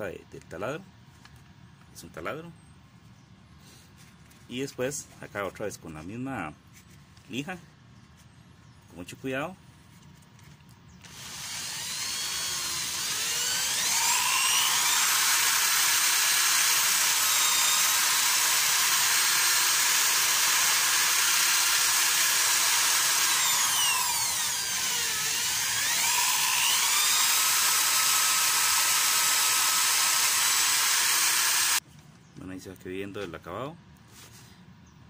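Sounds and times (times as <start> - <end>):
electric drill motor whine: 11.0 - 31.8.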